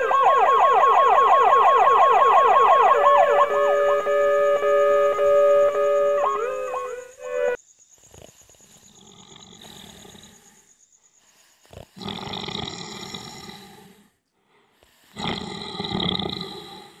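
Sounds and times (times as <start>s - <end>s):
cartoon old man snoring: 8.0s - 10.7s, 11.6s - 14.2s, 14.8s - 17.0s.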